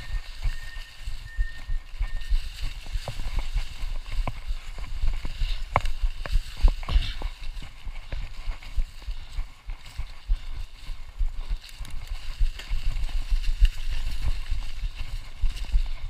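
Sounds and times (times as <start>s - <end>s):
bike rumbling on dirt trail: 0.0s - 16.0s
bike clicks and rattles: 2.2s - 10.3s.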